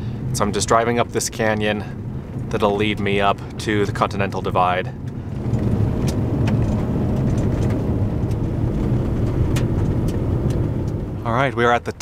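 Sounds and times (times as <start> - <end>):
car engine: 0.0 - 12.0
road and tyre noise: 0.0 - 12.0.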